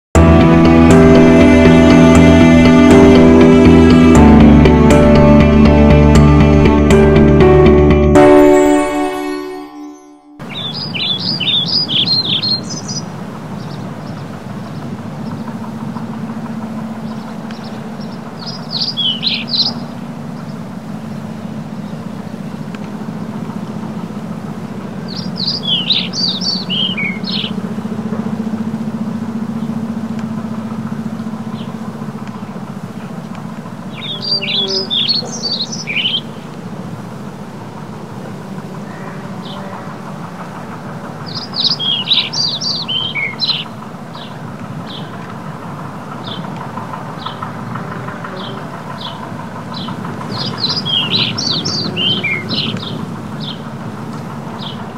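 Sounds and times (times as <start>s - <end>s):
tractor engine droning: 0.1s - 54.9s
bird chirping rapidly: 9.8s - 15.5s, 17.0s - 23.4s, 25.0s - 27.7s, 33.8s - 36.5s, 41.2s - 45.1s, 48.4s - 53.7s.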